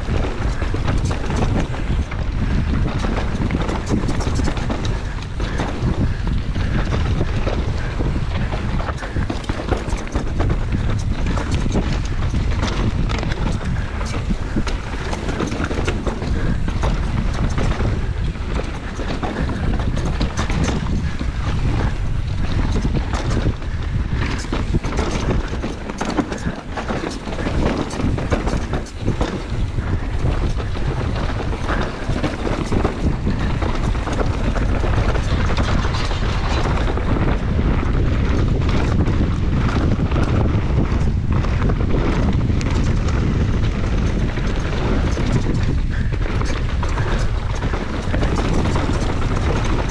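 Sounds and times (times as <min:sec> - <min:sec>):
bike rattling over rocks: 0:00.0 - 0:49.9
wind rushing over microphone: 0:00.0 - 0:49.9
tyre noise: 0:07.8 - 0:23.6, 0:24.2 - 0:36.6.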